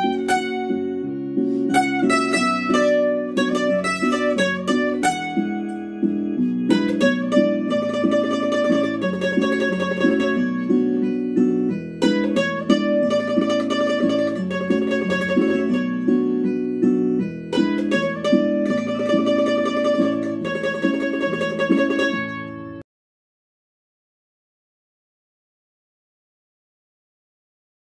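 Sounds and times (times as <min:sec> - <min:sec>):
bandurria tremolo melody: 0:00.0 - 0:16.5, 0:17.3 - 0:22.6
sustained chord accompaniment: 0:00.0 - 0:22.8.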